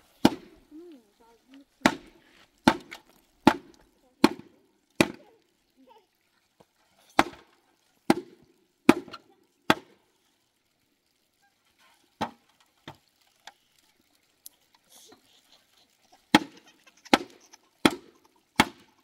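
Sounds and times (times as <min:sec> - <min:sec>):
blows striking wood: 0:00.2 - 0:00.6, 0:01.8 - 0:05.3, 0:07.2 - 0:07.5, 0:08.1 - 0:09.9, 0:16.3 - 0:19.0.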